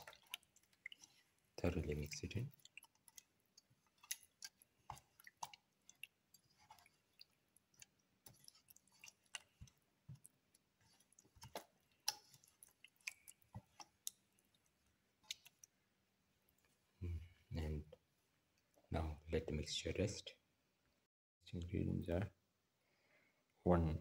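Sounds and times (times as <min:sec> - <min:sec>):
wet squishing of hand mixing fish: 0:00.0 - 0:18.9.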